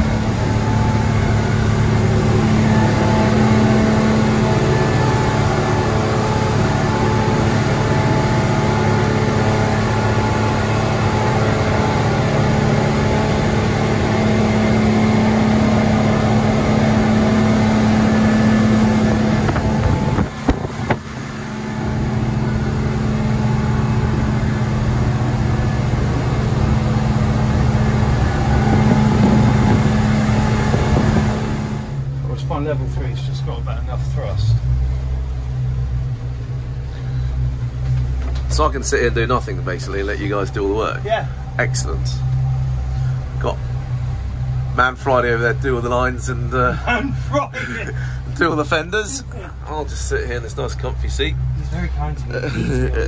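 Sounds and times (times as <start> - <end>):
water rushing past hull: 0.0 - 32.2
outboard engines droning: 0.0 - 53.0.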